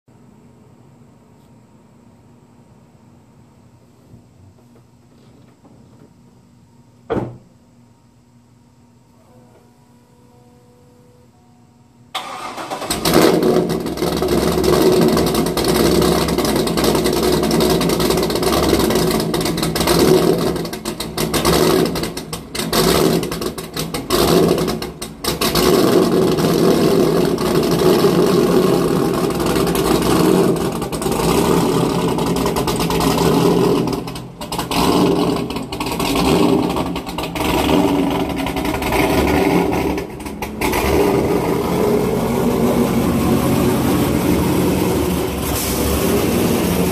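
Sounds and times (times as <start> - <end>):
car engine idling unevenly: 12.1 - 46.9.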